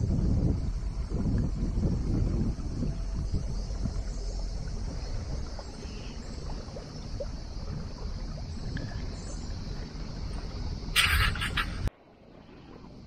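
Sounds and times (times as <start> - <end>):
steady low rumble: 0.0 - 13.0
water and wind noise: 0.0 - 13.0
faint ticks: 4.9 - 10.6.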